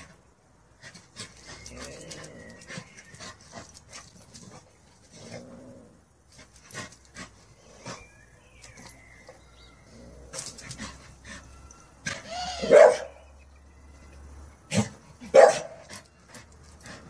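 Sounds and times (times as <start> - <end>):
dog barking: 12.6 - 13.2, 15.3 - 15.8.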